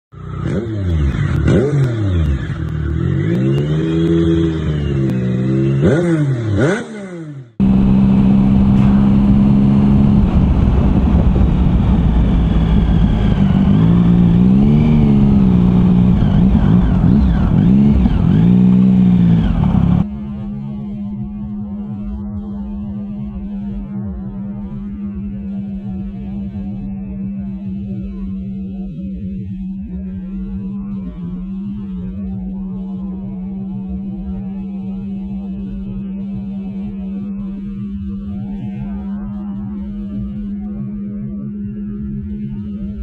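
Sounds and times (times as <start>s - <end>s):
motorcycle engine running: 0.1s - 43.0s
wind rumble: 7.6s - 28.7s, 30.0s - 43.0s.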